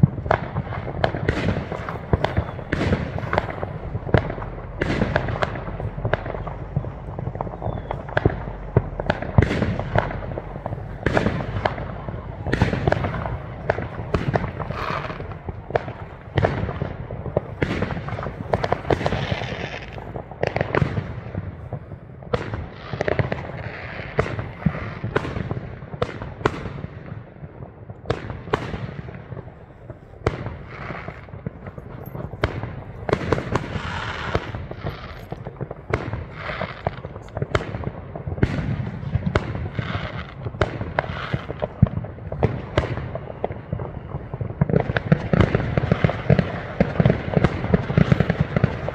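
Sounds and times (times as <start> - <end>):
low rumble: 0.0 - 22.0
fireworks bangs and crackles: 0.0 - 48.9.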